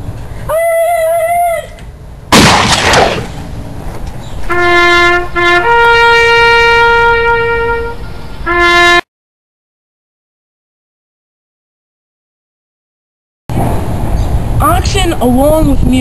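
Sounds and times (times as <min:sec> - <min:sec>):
horn long steady notes: 0:04.5 - 0:09.1
sudden rush of noise: 0:13.5 - 0:14.6.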